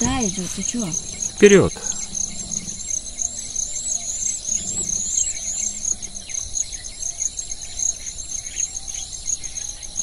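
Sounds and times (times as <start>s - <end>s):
insects chirping: 0.0s - 10.0s.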